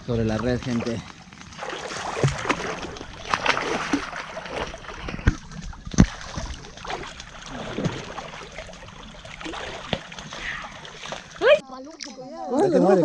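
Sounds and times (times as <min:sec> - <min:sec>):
river water splashing: 0:00.0 - 0:12.1.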